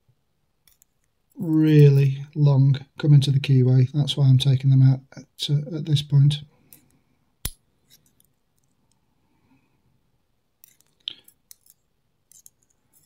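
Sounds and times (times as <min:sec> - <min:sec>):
small metal parts clicking: 0:00.6 - 0:01.1, 0:10.6 - 0:13.0.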